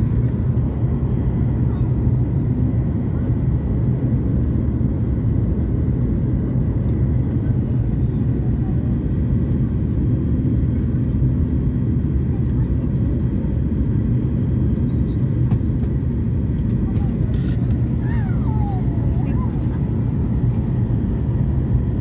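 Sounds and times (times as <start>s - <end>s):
jet airliner cabin rumble: 0.0s - 22.0s.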